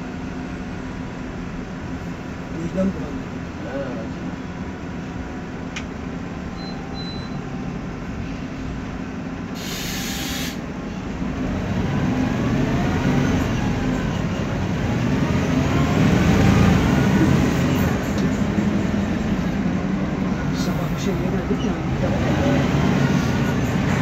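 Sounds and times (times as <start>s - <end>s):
bus interior low drone: 0.0s - 24.0s
short air hiss: 9.6s - 10.6s.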